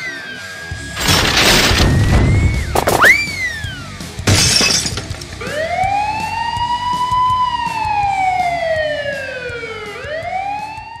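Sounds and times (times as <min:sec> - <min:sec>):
siren wailing: 0:05.4 - 0:11.0.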